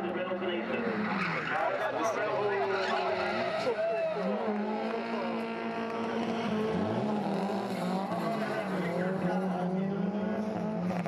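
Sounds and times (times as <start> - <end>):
car engines revving high: 0.0 - 11.0
tyres squealing and skidding: 0.8 - 4.6.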